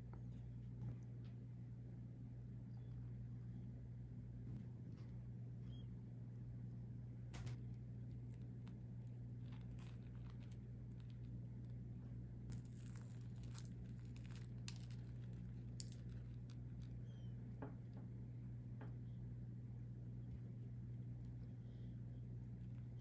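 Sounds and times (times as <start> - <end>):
low steady hum: 0.0 - 23.0
bread crust crackling and crunching: 7.3 - 18.0, 20.3 - 23.0.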